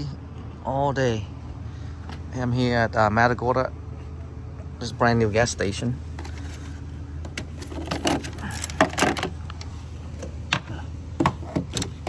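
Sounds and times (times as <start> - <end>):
steady low hum: 0.0 - 12.0
plastic panels clicking and knocking: 7.2 - 9.4, 10.2 - 12.0.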